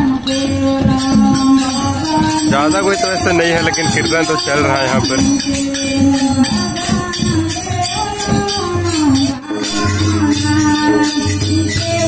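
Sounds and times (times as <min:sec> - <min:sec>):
person singing melody: 0:00.0 - 0:11.5
hand drum beat: 0:00.0 - 0:12.0
jingling percussion: 0:00.0 - 0:12.0.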